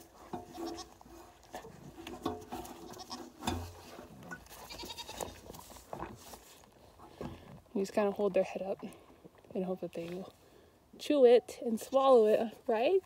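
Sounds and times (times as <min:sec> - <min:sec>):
goat bleating: 0:00.5 - 0:01.0, 0:02.8 - 0:03.4, 0:04.5 - 0:05.4.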